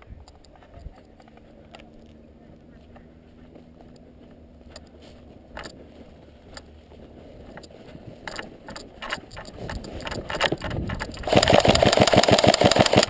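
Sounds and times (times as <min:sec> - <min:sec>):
scattered clicks: 0:00.0 - 0:02.2, 0:04.7 - 0:05.8, 0:06.5 - 0:06.7, 0:07.5 - 0:13.0
rapid mechanical rattle: 0:07.6 - 0:13.0.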